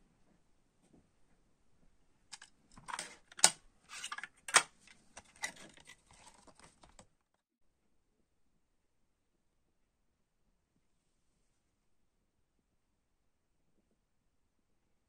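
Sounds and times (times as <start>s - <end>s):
plastic cassette case clicks: 2.4s - 7.0s
paper rustling: 2.8s - 7.1s.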